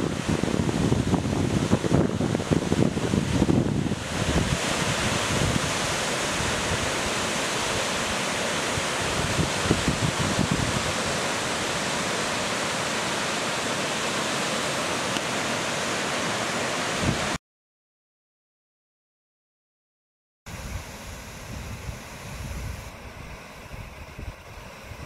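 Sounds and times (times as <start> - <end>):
waterfall rushing: 0.0 - 17.4
wind gusts on microphone: 0.0 - 17.4, 20.5 - 25.0.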